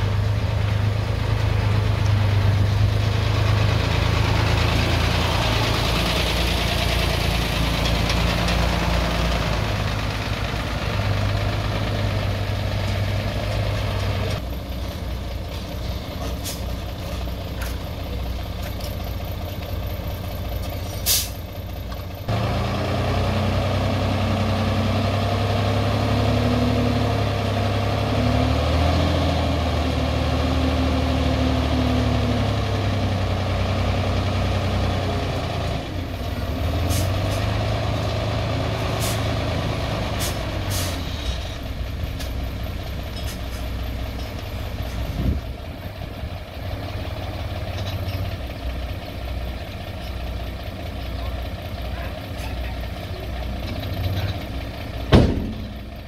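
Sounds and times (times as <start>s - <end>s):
heavy diesel engine running: 0.0s - 56.0s
short sharp hiss: 21.0s - 21.4s.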